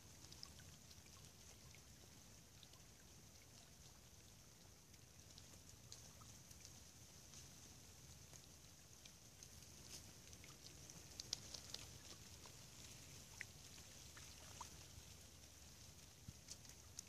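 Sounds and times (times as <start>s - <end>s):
faint steady hiss: 0.0s - 17.0s
light ticks of falling snow: 0.0s - 17.0s.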